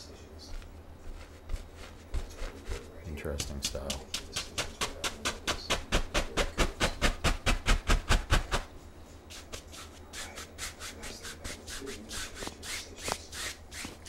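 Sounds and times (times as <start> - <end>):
paint brush scrubbing canvas: 0.0 - 3.1, 4.1 - 8.7, 9.3 - 14.0.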